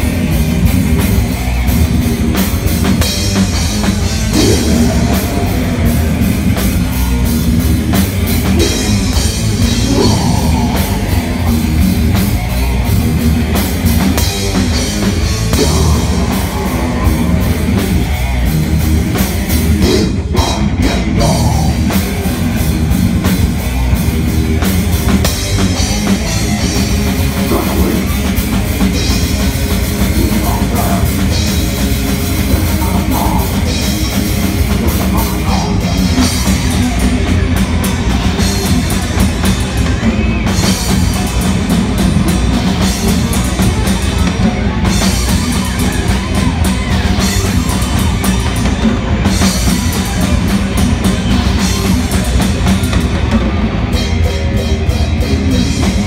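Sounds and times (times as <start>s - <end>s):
distorted electric guitar: 0.0s - 56.0s
drum kit: 0.0s - 56.0s.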